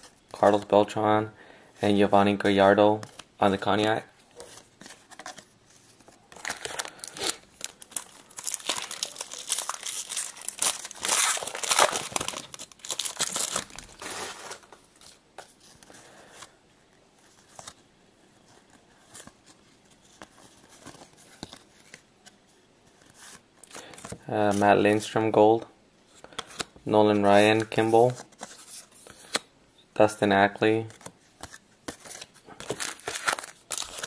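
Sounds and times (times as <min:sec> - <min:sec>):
cards rustling and clicking: 0:02.9 - 0:16.5, 0:30.7 - 0:34.0
wrapper tearing and crumpling: 0:06.4 - 0:14.7, 0:32.1 - 0:34.0.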